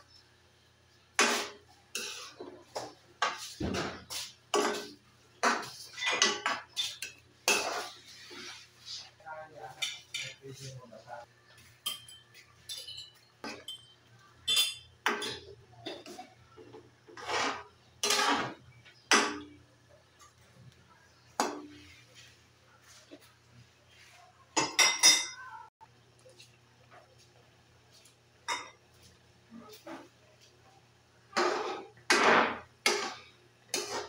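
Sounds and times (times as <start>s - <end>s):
metal ladle scraping wok: 1.2s - 2.5s, 5.6s - 9.1s, 17.2s - 18.6s.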